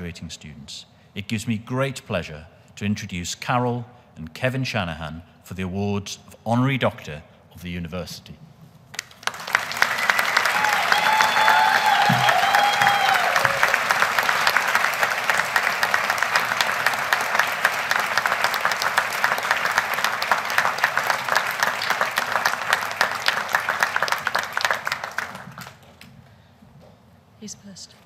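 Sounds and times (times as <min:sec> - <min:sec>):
audience applauding: 0:08.9 - 0:26.1.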